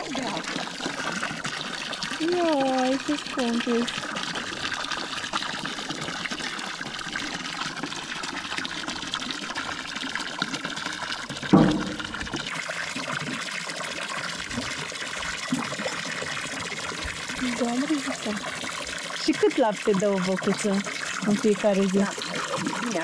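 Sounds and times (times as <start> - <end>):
water running and trickling: 0.0 - 23.0.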